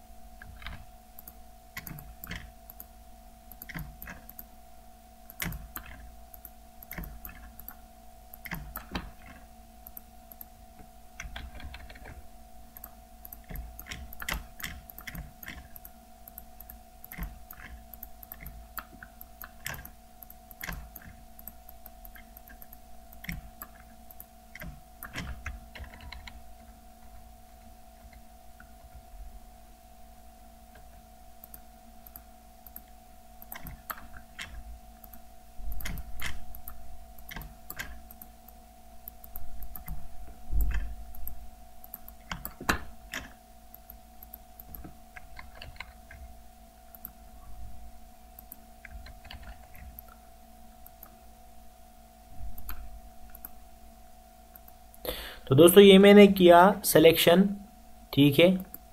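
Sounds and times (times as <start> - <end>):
faint electrical hum: 0.0 - 58.9
mouse and keyboard clicks: 0.4 - 2.9, 11.2 - 12.2, 12.8 - 26.4, 30.7 - 38.3, 40.6 - 46.2, 48.4 - 50.2.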